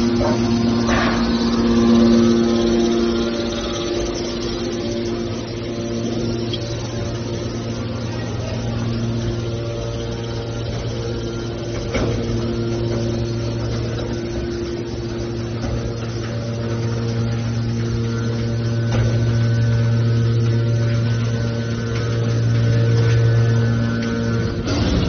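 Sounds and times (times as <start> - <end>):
hydraulic power unit humming: 0.0 - 25.0.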